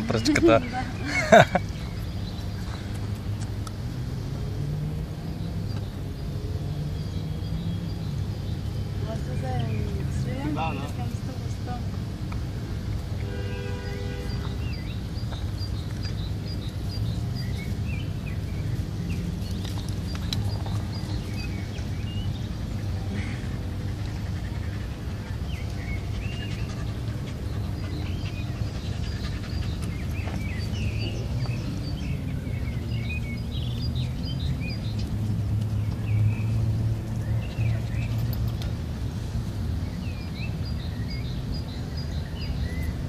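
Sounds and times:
birds chirping and trilling: 0.0s - 43.0s.

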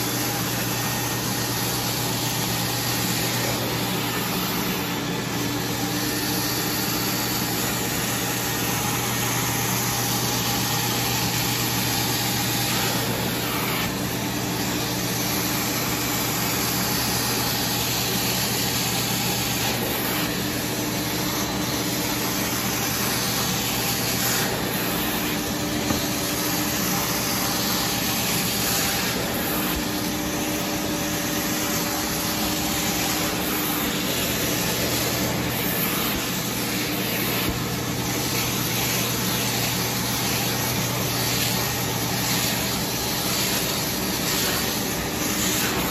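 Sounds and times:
vacuum motor humming: 0.0s - 45.9s
suction hiss on fabric: 14.5s - 45.9s.

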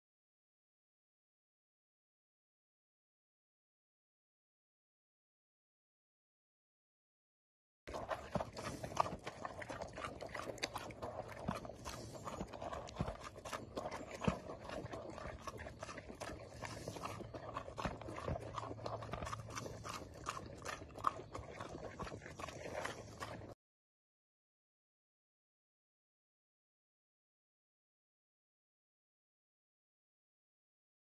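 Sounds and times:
pig slurping and smacking: 7.9s - 23.6s.

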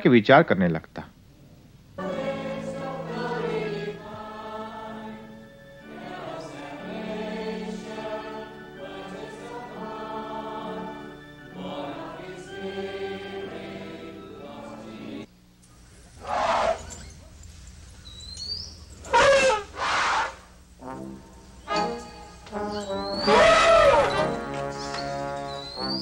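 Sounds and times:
choir singing a hymn: 2.0s - 15.3s, 20.2s - 26.0s.

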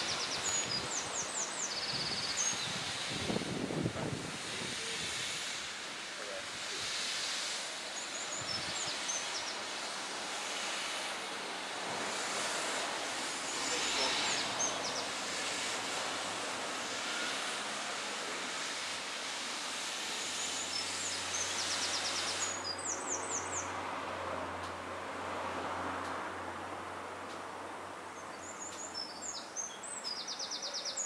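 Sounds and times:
small birds chirping: 0.0s - 3.0s, 28.1s - 31.0s
outdoor background hiss: 0.0s - 31.0s.

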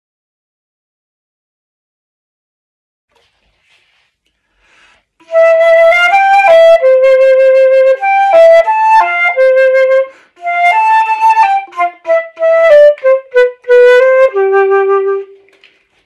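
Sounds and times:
solo flute melody: 5.2s - 15.4s.

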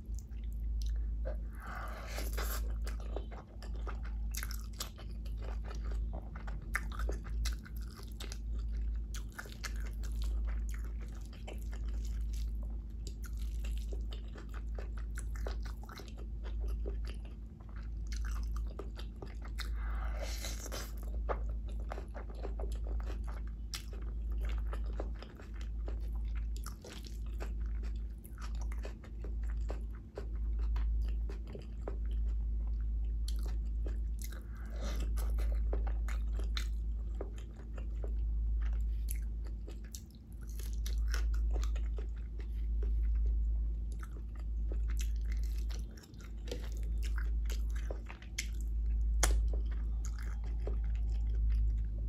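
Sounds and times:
close chewing and crunching: 0.0s - 52.0s
low hum: 25.6s - 52.0s.

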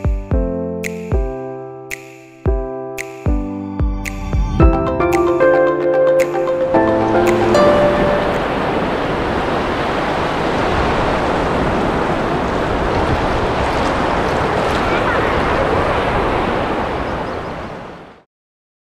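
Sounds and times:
small waves breaking on sand: 7.1s - 18.3s.

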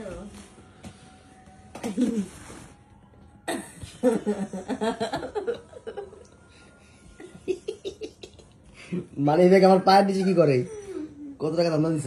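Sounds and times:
people laughing: 3.9s - 6.3s.

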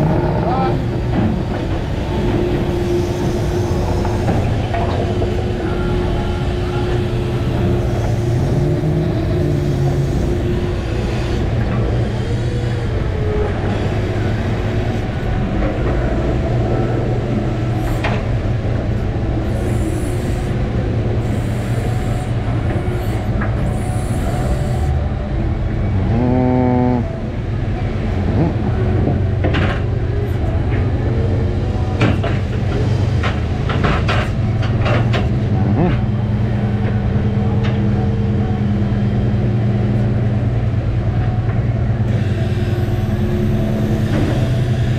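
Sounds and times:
boat engine and hydraulics drone: 0.0s - 44.9s
short pitched tone: 26.0s - 27.2s.

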